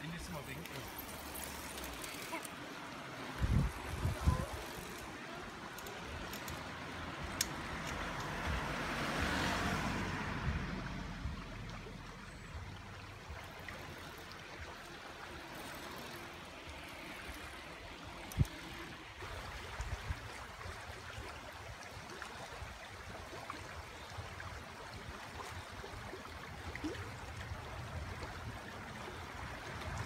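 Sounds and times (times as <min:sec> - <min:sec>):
car driving past: 0:07.7 - 0:12.2.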